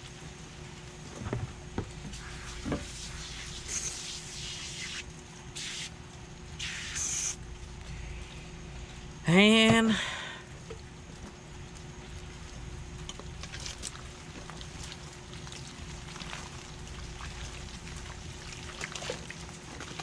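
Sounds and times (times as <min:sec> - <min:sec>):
aerosol can spraying: 0:02.2 - 0:05.0, 0:05.6 - 0:05.9, 0:06.6 - 0:07.4.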